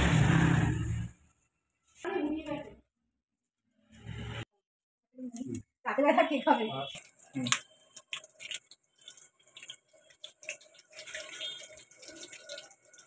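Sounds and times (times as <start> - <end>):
hot oil crackling in wok: 6.9 - 13.0.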